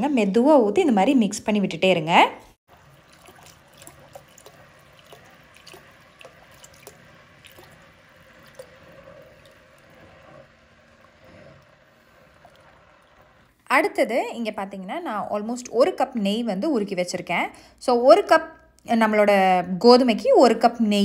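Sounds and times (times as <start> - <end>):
liquid trickling into a pot: 2.7 - 13.6.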